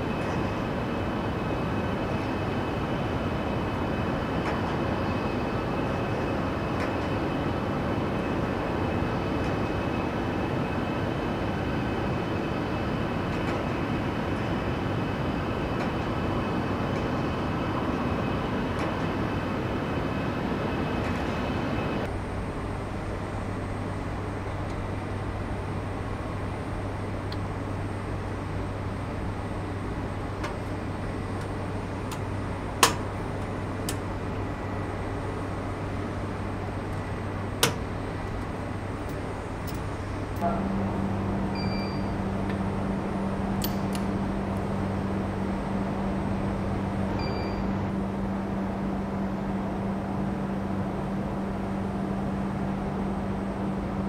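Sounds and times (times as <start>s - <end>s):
industrial rumble and hiss: 0.0s - 54.0s
faint high whines: 13.9s - 48.4s
low hum: 22.0s - 54.0s.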